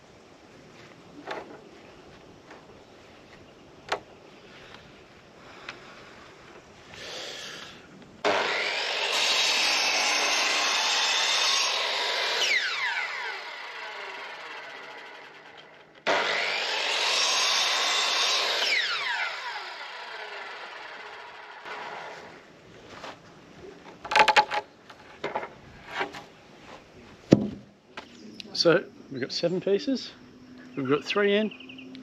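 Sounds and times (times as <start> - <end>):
mitre saw cutting wood: 8.2 - 22.4.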